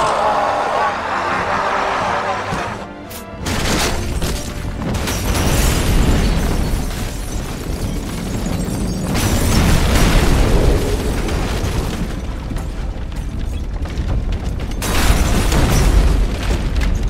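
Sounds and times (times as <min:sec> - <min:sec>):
film score music: 0:00.0 - 0:07.2
deep explosion rumble: 0:07.4 - 0:17.0.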